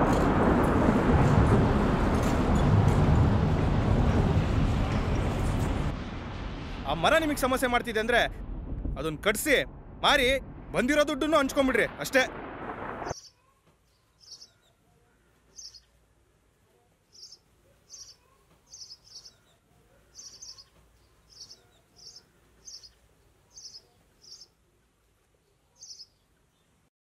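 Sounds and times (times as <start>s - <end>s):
small bird chirping: 13.1s - 14.8s, 15.4s - 16.0s, 17.1s - 24.6s, 25.7s - 26.8s.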